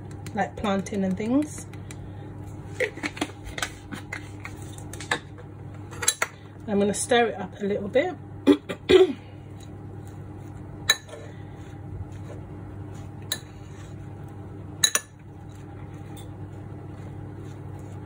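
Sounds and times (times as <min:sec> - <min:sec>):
steady low hum: 0:00.0 - 0:18.0
fork stirring food in bowl: 0:09.5 - 0:18.0.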